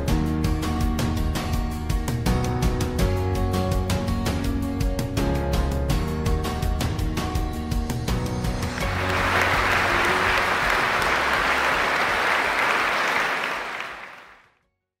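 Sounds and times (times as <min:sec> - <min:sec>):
background music: 0:00.0 - 0:14.3
audience applauding: 0:08.6 - 0:14.5.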